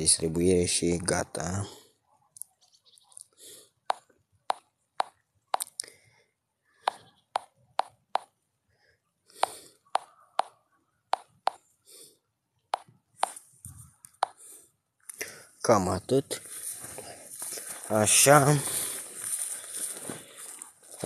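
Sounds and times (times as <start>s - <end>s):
fingers tapping on smartphone: 3.8s - 5.8s, 6.8s - 8.4s, 9.4s - 11.6s, 12.7s - 13.4s, 14.1s - 14.4s.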